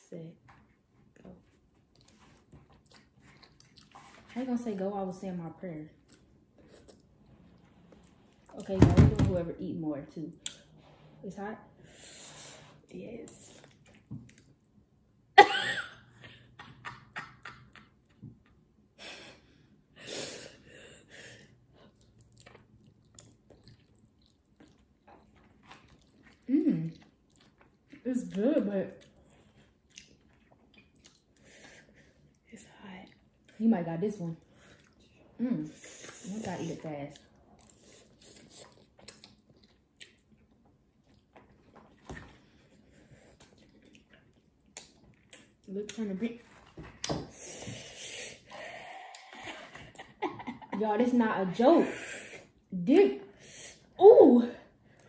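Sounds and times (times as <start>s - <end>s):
chewing and slurping noodles: 1.9s - 4.3s, 21.5s - 28.0s, 29.0s - 32.4s, 37.2s - 45.7s.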